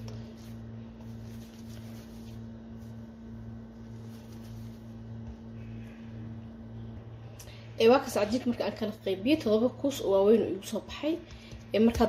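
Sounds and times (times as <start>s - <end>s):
hands kneading bread dough: 0.0s - 6.6s
low electrical hum: 0.0s - 12.0s.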